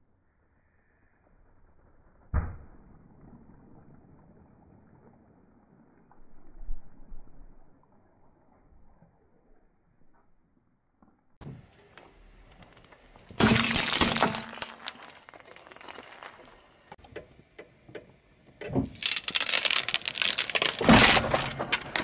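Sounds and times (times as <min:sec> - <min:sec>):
light bulbs crunching under tyre: 0:12.0 - 0:16.9, 0:18.7 - 0:22.0
glass sheets cracking: 0:13.4 - 0:16.7, 0:18.8 - 0:22.0.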